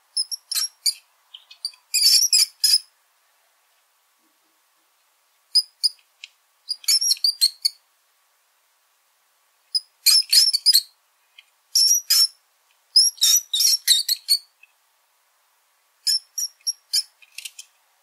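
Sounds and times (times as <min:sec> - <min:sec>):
rat squeaking: 0:00.2 - 0:02.9, 0:05.6 - 0:06.0, 0:06.7 - 0:07.8, 0:09.8 - 0:10.9, 0:11.8 - 0:12.4, 0:13.0 - 0:14.5, 0:16.0 - 0:17.6.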